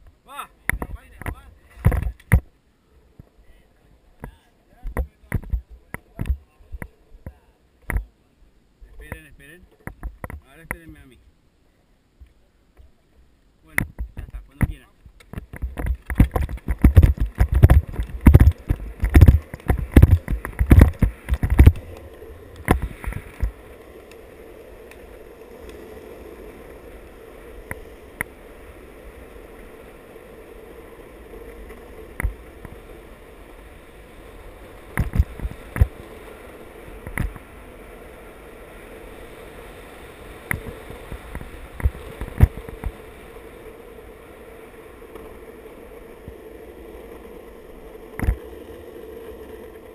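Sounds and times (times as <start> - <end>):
longboard wheels on asphalt: 0.0 - 49.9
knocks and thumps: 13.8 - 21.8
wind on microphone: 15.4 - 23.6.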